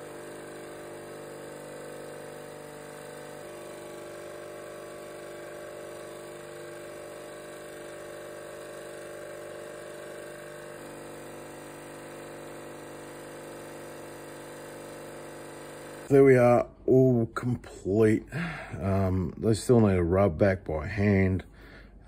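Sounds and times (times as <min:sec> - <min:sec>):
bench grinder motor hum: 0:00.0 - 0:16.6.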